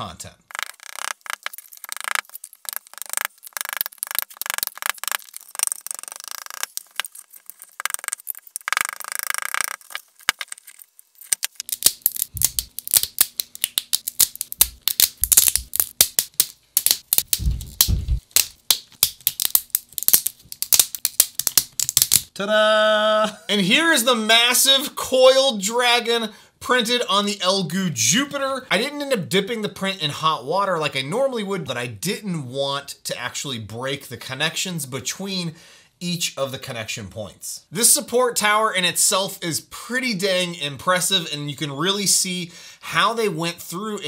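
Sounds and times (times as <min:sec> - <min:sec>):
resin supports snapping and cracking: 0:00.5 - 0:22.3.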